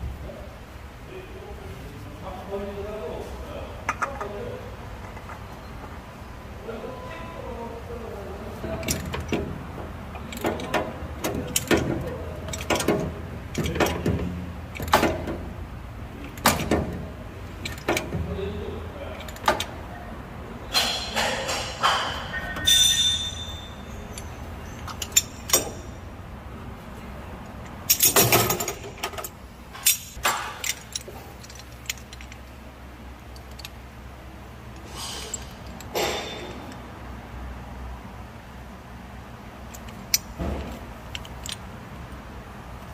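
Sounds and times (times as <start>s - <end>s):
steady low hum: 0.0s - 42.9s
metal tools clinking: 8.6s - 9.5s, 10.1s - 15.3s, 17.6s - 18.3s, 19.0s - 19.8s, 20.7s - 26.0s, 27.6s - 32.5s, 34.7s - 36.8s, 39.7s - 41.7s
metallic clanks and knocks: 8.6s - 15.5s, 16.2s - 18.4s, 20.7s - 26.0s, 27.9s - 32.4s, 35.3s - 36.8s.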